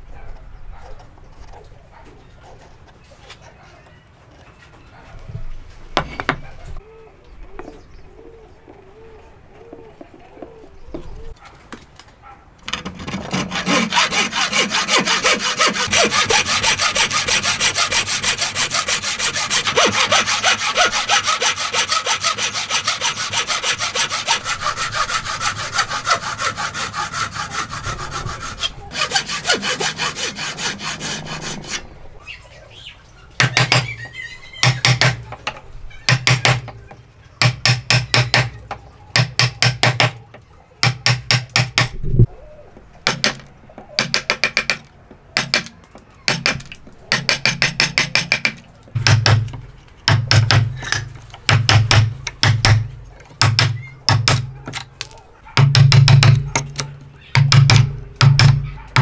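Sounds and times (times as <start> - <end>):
frame saw ripping wood: 12.8 - 31.8.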